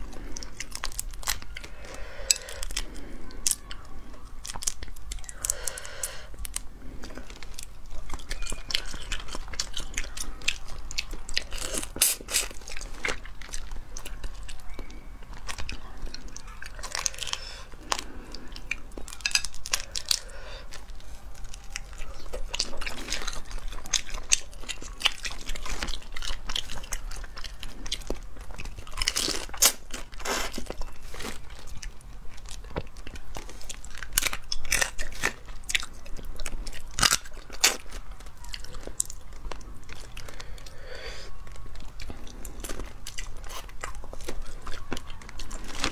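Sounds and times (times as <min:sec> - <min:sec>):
crunching and chewing shellfish: 0:00.0 - 0:45.9
shells cracking: 0:00.2 - 0:31.8.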